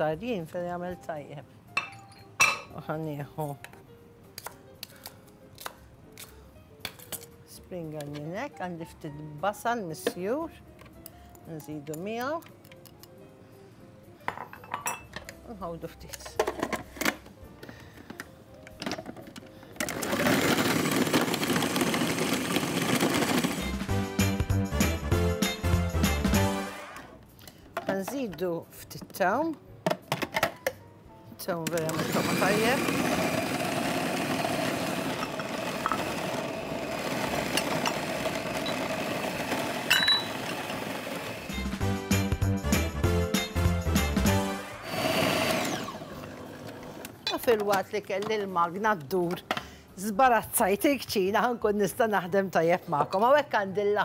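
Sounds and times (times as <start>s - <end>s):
food processor chopping: 19.9s - 23.8s, 31.9s - 41.6s, 44.8s - 47.1s
kitchen machine motor running: 32.0s - 41.6s, 44.8s - 47.0s.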